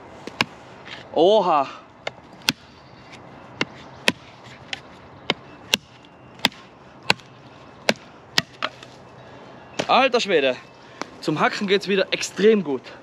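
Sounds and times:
knife chopping into wood: 0:03.6 - 0:08.8.

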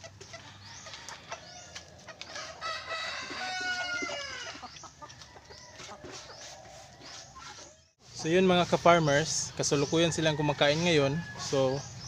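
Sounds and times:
chickens clucking: 0:00.0 - 0:12.0
rooster crowing: 0:02.3 - 0:04.6.

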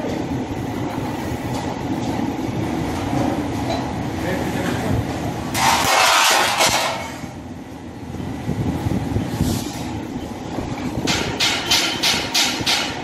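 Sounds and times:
steel strips scraping on metal: 0:05.6 - 0:07.2
sharp metallic clanks: 0:11.0 - 0:13.0.

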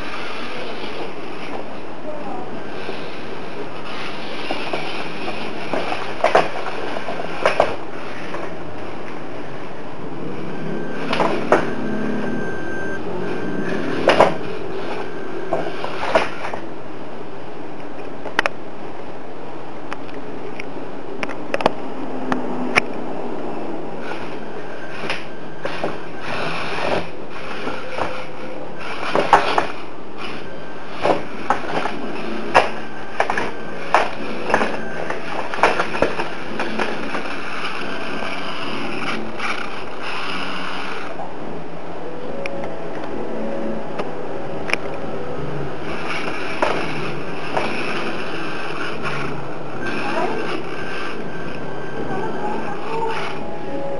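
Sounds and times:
steady hiss: 0:00.0 - 0:12.4, 0:13.0 - 0:53.9
small electric motors whirring: 0:24.0 - 0:41.2.

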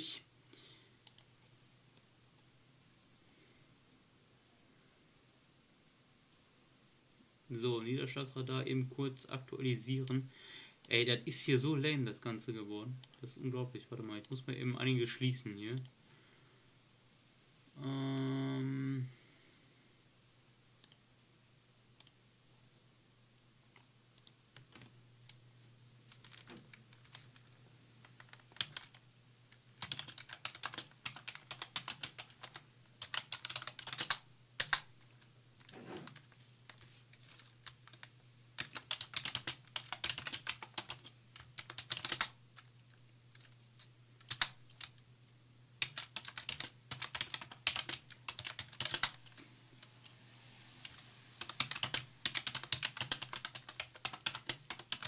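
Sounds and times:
typing on computer keyboard: 0:28.1 - 0:29.0, 0:29.8 - 0:34.8, 0:37.6 - 0:42.3, 0:44.3 - 0:44.9, 0:45.8 - 0:49.2, 0:51.4 - 0:55.0.

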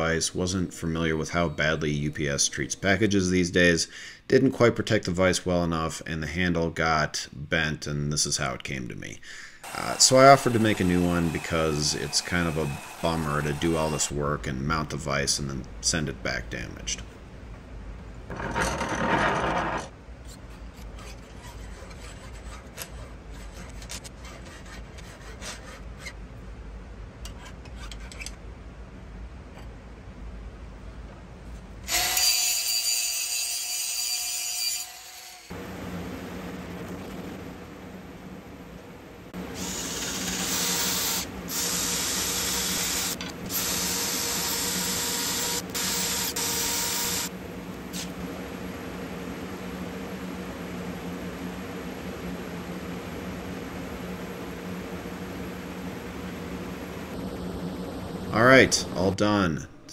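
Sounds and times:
drill spinning rod against sponge: 0:09.6 - 0:14.2, 0:39.6 - 0:47.3
file scraping on steel rod: 0:20.3 - 0:26.2.

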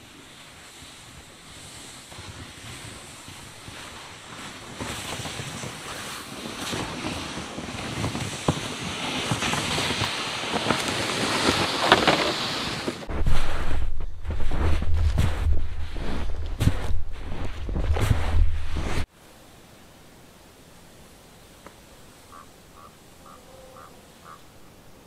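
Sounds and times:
sled dragged over snow: 0:00.0 - 0:19.1
wind rumble on microphone: 0:00.0 - 0:19.1
boots crunching in snow: 0:00.1 - 0:19.1.

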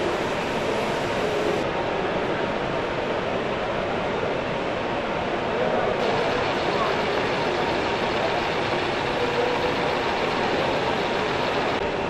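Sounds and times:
exhibition hall din: 0:05.9 - 0:11.8
machine drone: 0:06.0 - 0:12.0.

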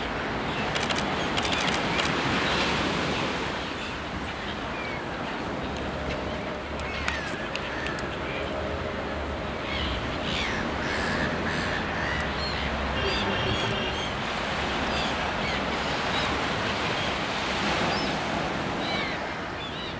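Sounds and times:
terns and gulls calling: 0:00.5 - 0:08.6, 0:09.6 - 0:19.9
surf washing onto beach: 0:10.6 - 0:19.6.

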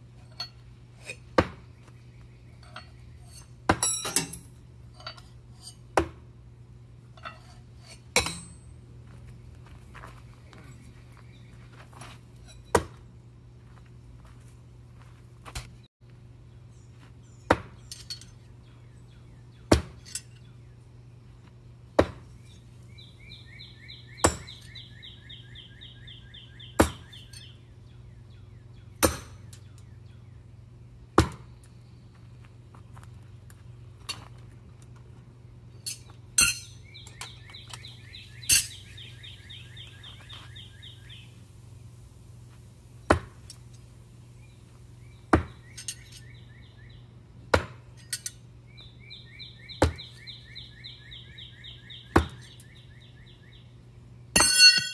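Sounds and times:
light metallic clinks: 0:17.8 - 0:18.5, 0:20.0 - 0:20.5, 0:35.7 - 0:37.9, 0:45.7 - 0:46.4, 0:48.0 - 0:48.4.

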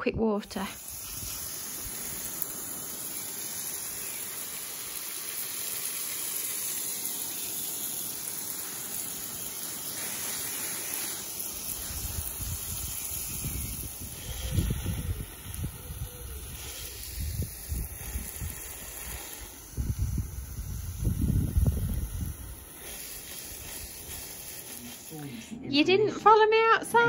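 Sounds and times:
hose spray nozzle hissing: 0:00.4 - 0:25.6.

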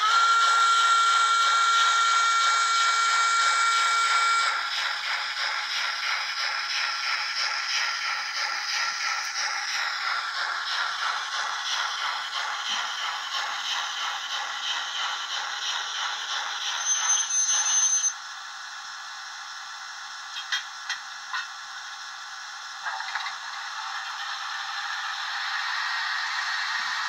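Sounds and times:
model steam locomotive chuffing: 0:00.0 - 0:27.0
steam hiss: 0:00.0 - 0:27.0
high thin squeal: 0:16.6 - 0:18.2.

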